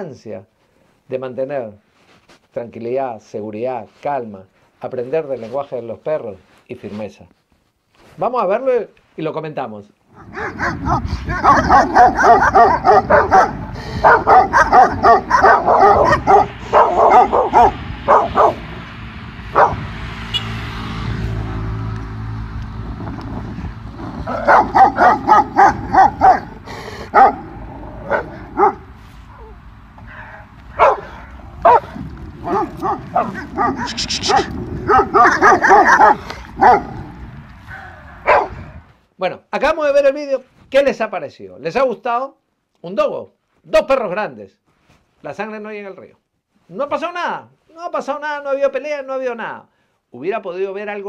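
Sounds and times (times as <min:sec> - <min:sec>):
dogs barking: 0:10.2 - 0:18.9, 0:19.5 - 0:19.9, 0:24.1 - 0:37.3, 0:38.1 - 0:38.8.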